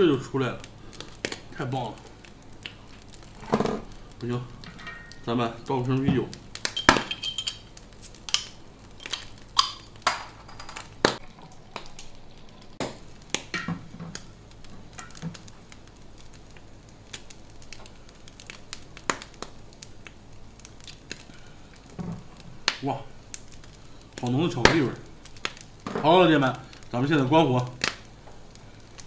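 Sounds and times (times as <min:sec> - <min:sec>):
meat crackling on a grill: 0:00.0 - 0:29.0
bottle and glass clinking: 0:04.7 - 0:05.3, 0:06.7 - 0:07.7, 0:09.0 - 0:10.8.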